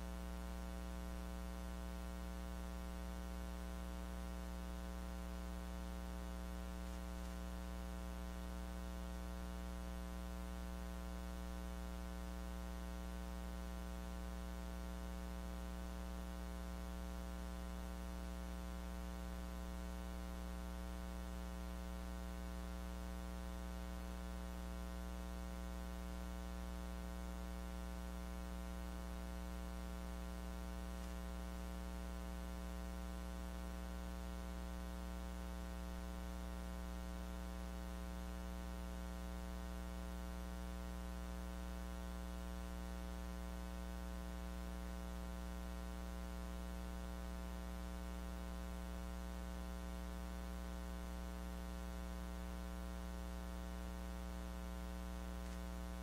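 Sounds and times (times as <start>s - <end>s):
electrical mains hum: 0.0s - 56.0s.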